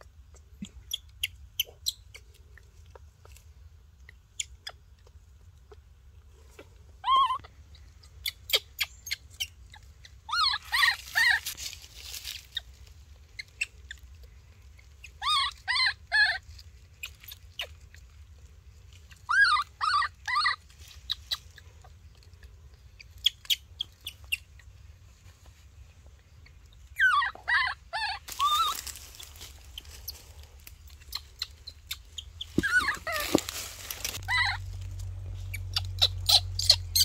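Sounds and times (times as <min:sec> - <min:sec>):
baby monkey squealing: 0:07.0 - 0:11.6, 0:14.9 - 0:17.8, 0:19.1 - 0:21.7, 0:26.2 - 0:37.0.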